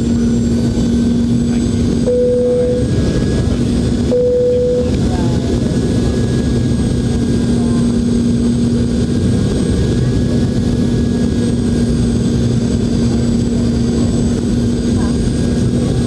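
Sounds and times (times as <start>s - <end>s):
aircraft cabin drone: 0.0s - 16.0s
low hum: 0.0s - 16.0s.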